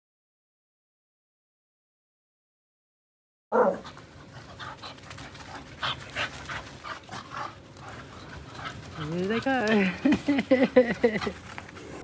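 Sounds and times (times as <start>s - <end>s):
dog panting: 3.8s - 12.0s.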